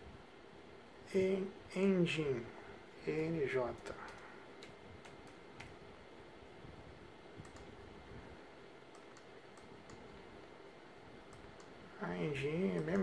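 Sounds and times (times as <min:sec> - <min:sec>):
low room hum: 0:00.0 - 0:13.0
computer keyboard and mouse clicks: 0:03.8 - 0:05.8, 0:07.4 - 0:07.7, 0:08.9 - 0:10.0.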